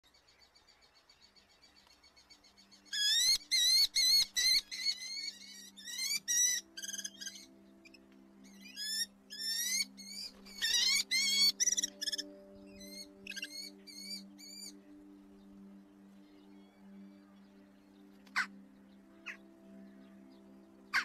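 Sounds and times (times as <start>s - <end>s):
falcons calling shrilly: 8.7s - 14.6s.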